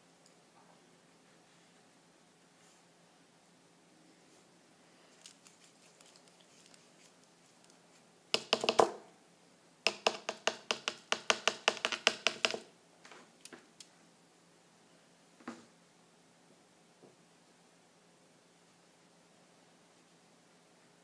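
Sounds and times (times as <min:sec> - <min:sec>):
sharp taps and clicks: 0:08.4 - 0:09.0, 0:09.9 - 0:12.7.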